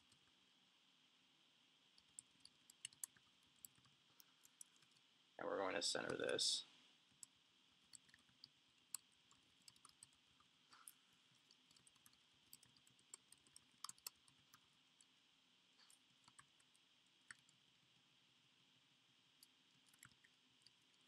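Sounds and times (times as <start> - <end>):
faint steady hiss: 0.0 - 21.0
keyboard typing: 2.0 - 5.0, 7.9 - 14.6, 15.8 - 17.6, 19.4 - 21.0.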